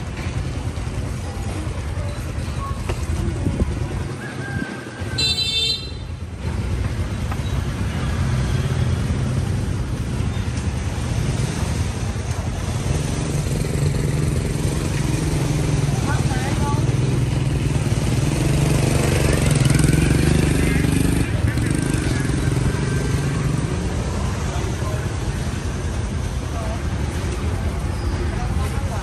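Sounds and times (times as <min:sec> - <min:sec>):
street traffic rumble: 0:00.0 - 0:29.0.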